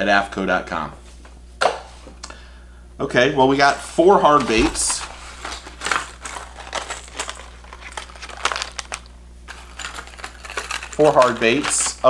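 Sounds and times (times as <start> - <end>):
plastic packs crinkling: 4.3 - 12.0.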